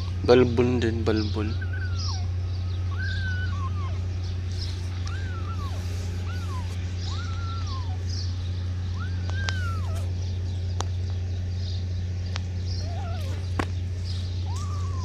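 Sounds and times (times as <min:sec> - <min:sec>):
kittens meowing: 0:00.0 - 0:10.7, 0:12.4 - 0:15.0
low steady hum: 0:00.0 - 0:15.0
sharp clicks: 0:09.2 - 0:09.7.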